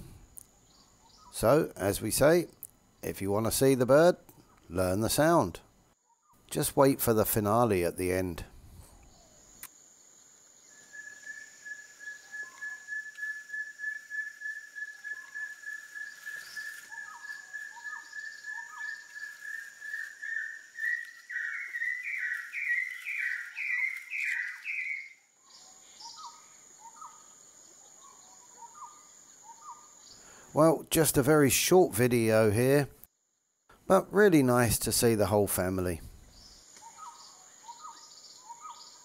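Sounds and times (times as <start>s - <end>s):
bird whistling song: 10.6s - 27.3s, 27.9s - 30.2s, 36.3s - 39.0s
soft upslurred bird notes: 10.8s - 27.2s.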